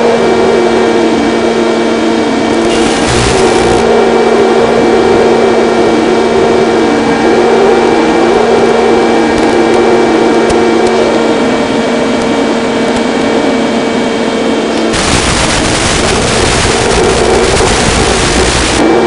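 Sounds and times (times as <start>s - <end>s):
wavering wind whistle: 0.0s - 19.0s.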